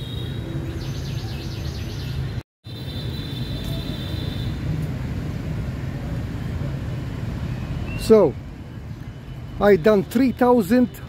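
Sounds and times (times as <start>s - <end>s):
birds chirping: 0.0s - 2.4s, 7.4s - 10.9s
traffic rumble: 0.0s - 11.0s.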